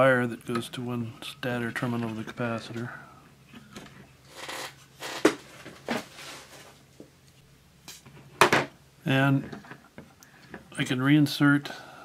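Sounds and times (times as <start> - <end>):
rustling of wires and parts: 3.5 - 10.8.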